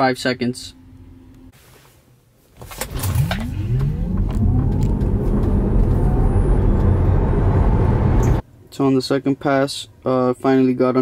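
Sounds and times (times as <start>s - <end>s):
road and tyre rumble: 2.8s - 8.4s.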